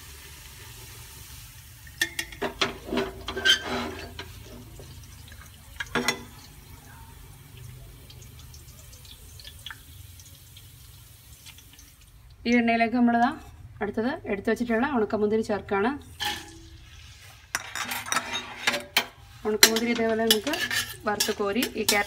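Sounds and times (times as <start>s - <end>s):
metal skimmer clinking against pot: 2.0s - 4.7s, 5.8s - 6.4s, 17.6s - 22.0s
faint dripping: 4.2s - 13.8s.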